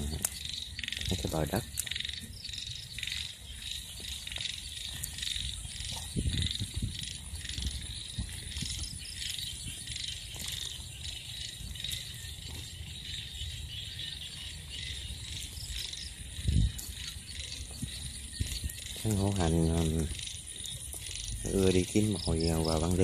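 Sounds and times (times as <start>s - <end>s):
footsteps in grass and dirt: 0.0s - 23.0s
insects chirping at night: 0.0s - 23.0s.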